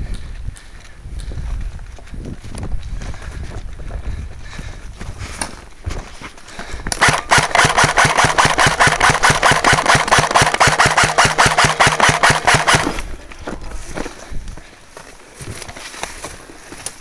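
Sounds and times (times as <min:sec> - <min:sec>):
airsoft gun full-auto burst: 0:07.0 - 0:13.1.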